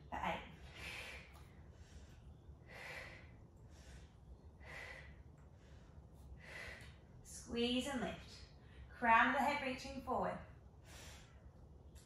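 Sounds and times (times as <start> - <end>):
woman breathing softly: 0.6 - 7.2, 10.7 - 11.7.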